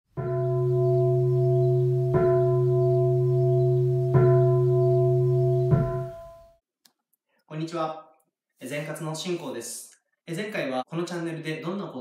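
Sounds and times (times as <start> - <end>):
singing bowl ringing: 0.1 - 6.6.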